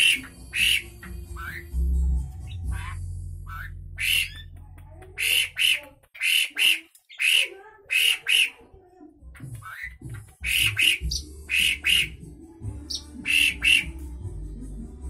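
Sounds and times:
starling calling harshly: 0:00.0 - 0:01.6, 0:02.7 - 0:04.5, 0:05.2 - 0:08.6, 0:09.6 - 0:12.2, 0:12.9 - 0:14.0.

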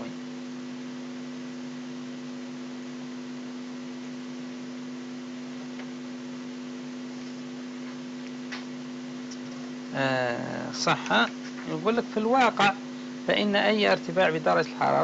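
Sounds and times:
steady electrical hum: 0:00.0 - 0:15.0
even hiss: 0:08.6 - 0:15.0.

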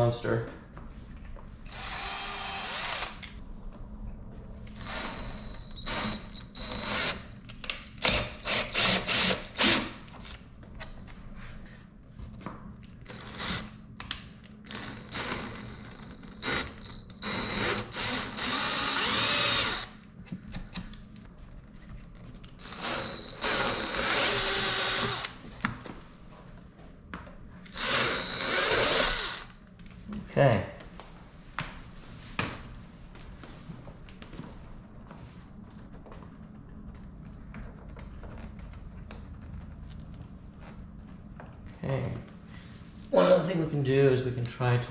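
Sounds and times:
cordless drill drilling: 0:01.7 - 0:03.2, 0:04.8 - 0:07.2, 0:08.0 - 0:10.3, 0:13.1 - 0:13.7, 0:14.7 - 0:20.0, 0:22.6 - 0:25.4, 0:27.7 - 0:29.6.

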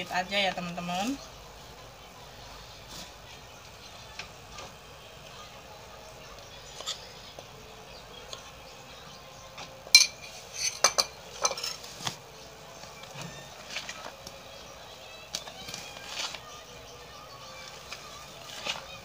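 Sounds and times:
batter being stirred by hand: 0:00.0 - 0:19.0
spoon clinking against bowl: 0:10.0 - 0:11.8.

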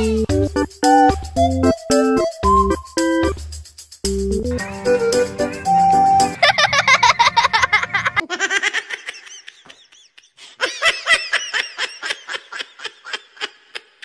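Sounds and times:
music snippet: 0:00.0 - 0:08.1
baby laughing: 0:06.4 - 0:14.0.

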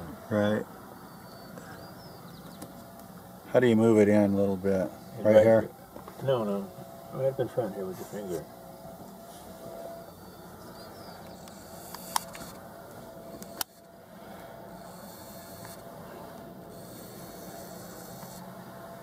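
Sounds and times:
fingers clicking on camera: 0:11.2 - 0:12.6.

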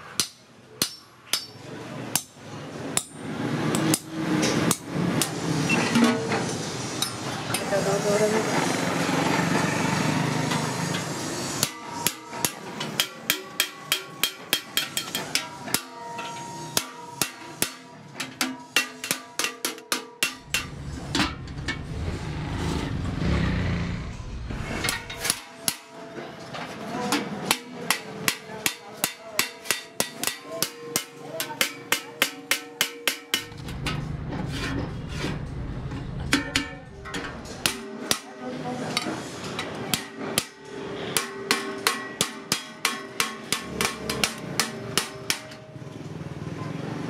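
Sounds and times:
hammer tapping metal rivets: 0:00.2 - 0:02.4, 0:11.6 - 0:20.7, 0:27.5 - 0:34.0, 0:41.2 - 0:45.7
low rumble: 0:20.4 - 0:25.3.

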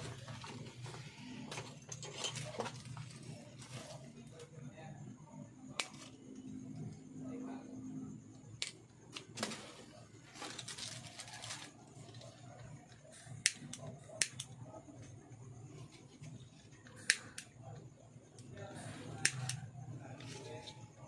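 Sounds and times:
pliers clicking and snipping wire: 0:13.3 - 0:14.6, 0:17.0 - 0:17.5, 0:19.2 - 0:19.7.

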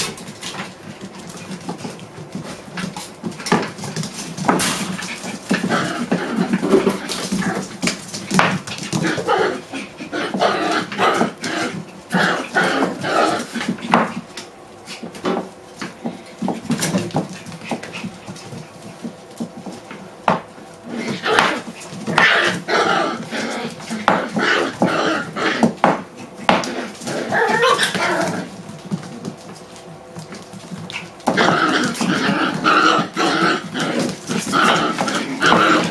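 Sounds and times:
puppies yipping and squealing: 0:21.0 - 0:28.6.

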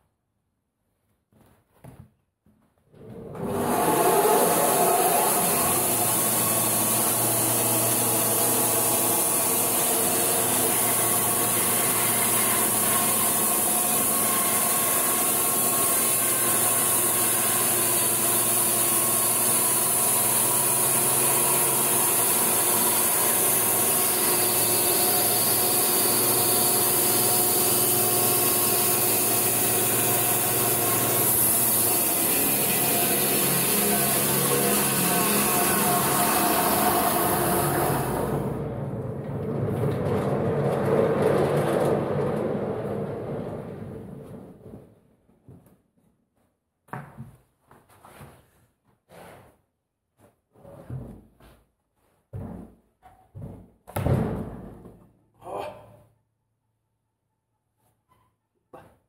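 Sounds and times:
band sawmill motor running: 0:03.3 - 0:44.3
saw blade ripping through wood: 0:03.6 - 0:38.3.

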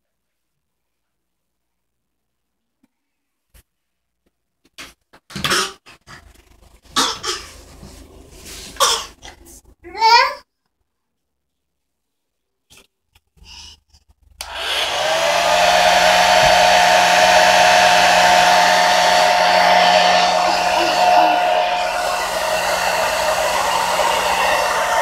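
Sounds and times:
hair dryer blowing air: 0:14.4 - 0:25.0
hair dryer motor whine: 0:14.4 - 0:25.0.

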